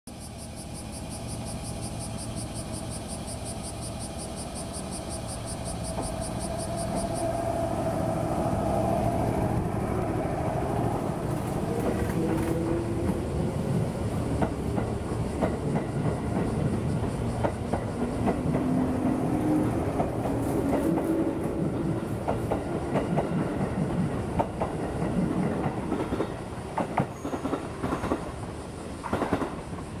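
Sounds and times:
electric train motors whining: 0.2s - 22.3s
train wheels clacking over rail joints: 4.4s - 7.7s, 10.0s - 30.0s.

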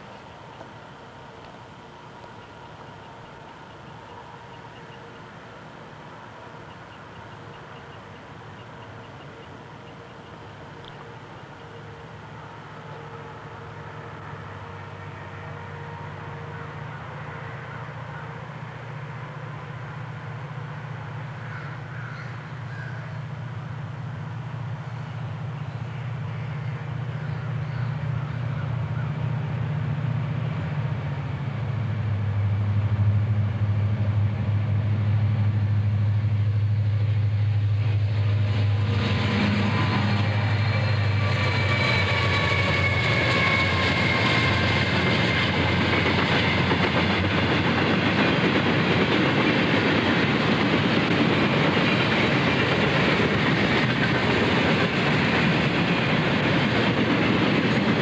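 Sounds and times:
diesel locomotive engines: 0.0s - 58.0s
train wheels on rail: 0.0s - 58.0s.

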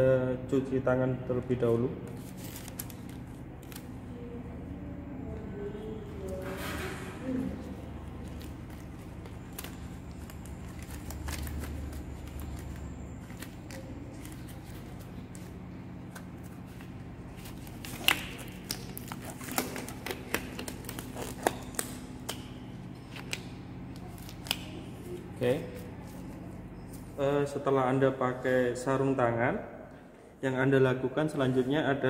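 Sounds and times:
low hum: 1.2s - 30.4s
latex gloves rustling: 8.0s - 22.1s.

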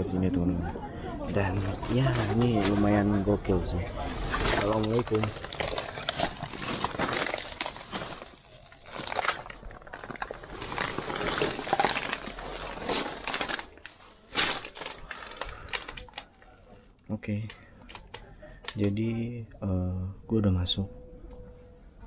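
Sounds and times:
rubbish crunching and crackling: 3.8s - 18.9s.

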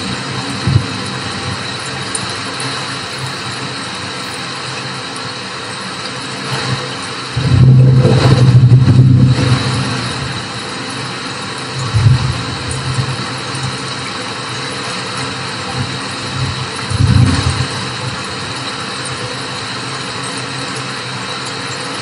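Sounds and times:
steady rain hiss: 0.0s - 21.7s
low roll of thunder: 7.3s - 10.6s, 11.7s - 13.8s.

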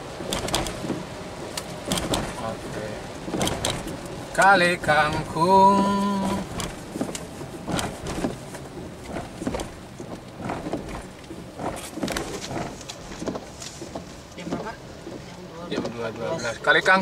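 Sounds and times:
car interior hum: 0.0s - 17.0s.

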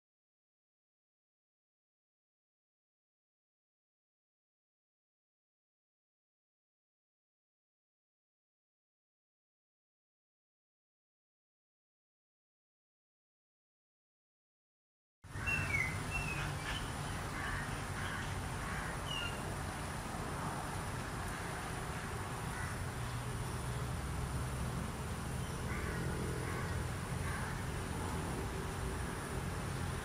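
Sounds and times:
short bird calls: 15.3s - 19.4s
low rumble and hiss: 15.3s - 30.0s.

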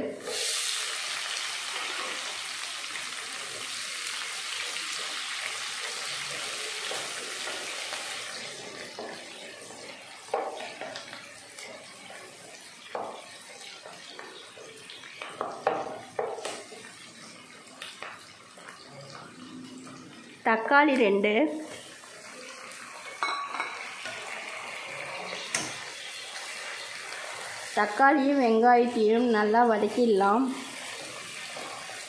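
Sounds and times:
onions sizzling in hot oil: 0.0s - 32.0s
wooden spoon scraping a pan: 30.6s - 32.0s.

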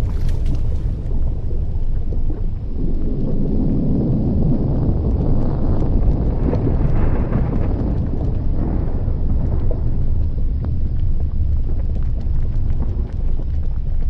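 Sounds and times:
deep rumble of volcano: 0.0s - 14.0s
faint crackles and pops: 0.0s - 14.0s.

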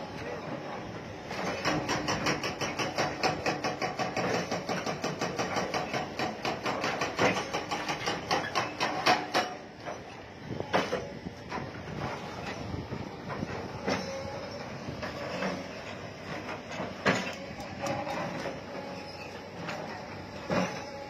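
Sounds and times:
concrete demolition knocks and clatter: 1.3s - 12.7s, 14.9s - 18.8s.

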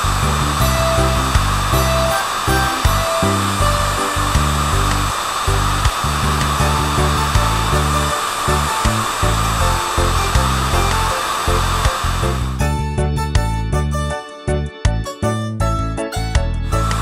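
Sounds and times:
jet thrusters hissing: 0.0s - 12.6s
music with pulsing bass: 0.0s - 17.0s.

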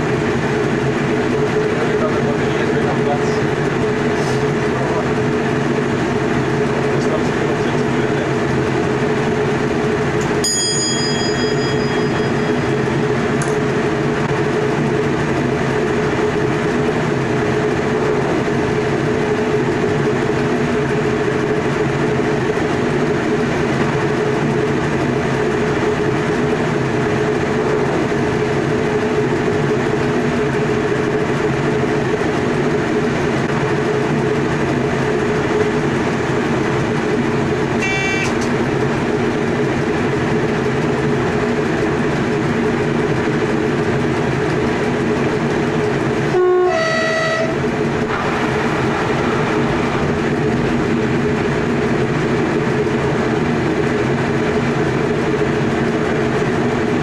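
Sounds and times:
train wheels rumbling on rails: 0.0s - 57.0s
click with bell-like ring: 10.4s - 12.8s
steady low hum: 47.3s - 57.0s.

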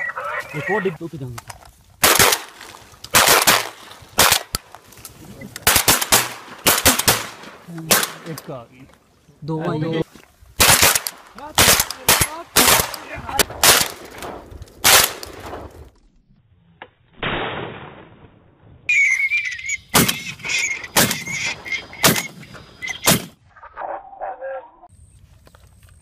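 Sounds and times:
shotgun blasts: 2.0s - 4.6s, 5.6s - 8.4s, 10.6s - 15.7s, 17.2s - 18.2s, 23.0s - 23.4s
high wavering whistle: 18.9s - 21.8s.

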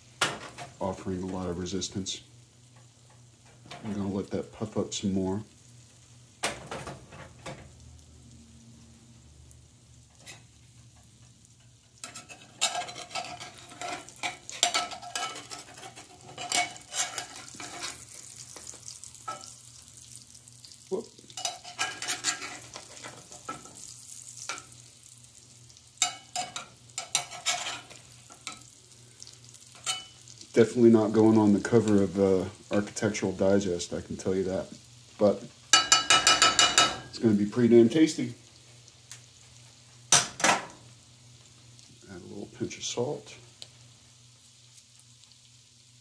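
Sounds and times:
egg sizzling in hot fat: 0.0s - 46.0s
metal spatula scraping pan: 12.0s - 19.6s, 21.3s - 24.7s, 26.0s - 28.6s.

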